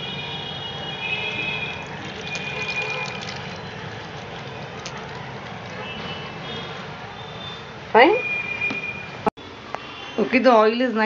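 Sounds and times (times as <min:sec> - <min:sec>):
water trickling into basin: 0:01.2 - 0:06.6.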